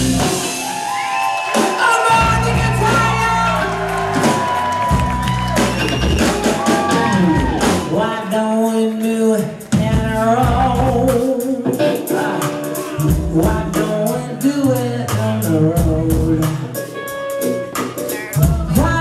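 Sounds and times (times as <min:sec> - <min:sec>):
drums: 0:00.0 - 0:19.0
electric guitar: 0:00.0 - 0:19.0
woman singing: 0:07.8 - 0:16.8, 0:18.3 - 0:19.0.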